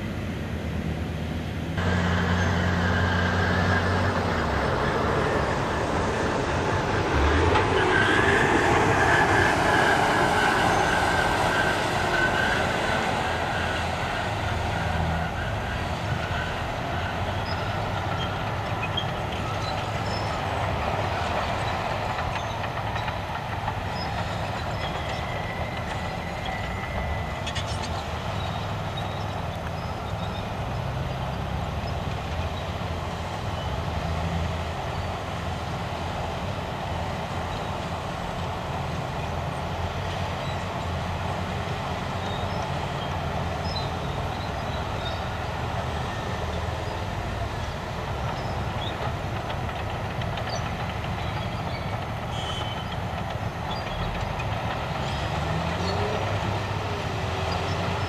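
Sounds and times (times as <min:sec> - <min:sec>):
heavy diesel engines rumbling: 0:00.0 - 0:58.0
engine revving up: 0:01.8 - 0:15.0.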